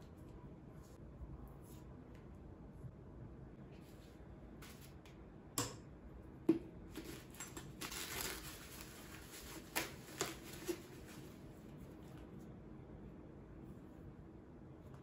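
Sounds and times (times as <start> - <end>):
packing paper rustling: 6.9 - 12.2.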